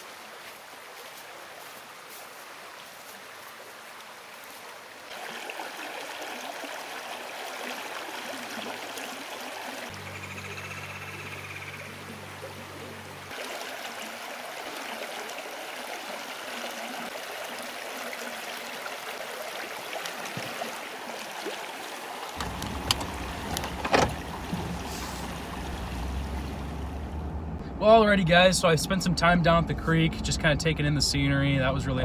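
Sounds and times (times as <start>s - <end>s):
creek water rushing: 0.0s - 27.2s.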